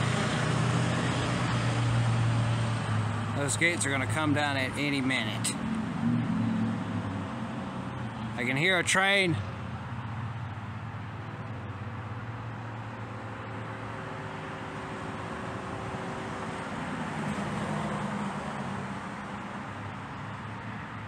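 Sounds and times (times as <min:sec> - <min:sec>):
vehicle passing: 0:00.0 - 0:12.6
road noise: 0:00.0 - 0:21.0
vehicle engine hum: 0:00.0 - 0:21.0.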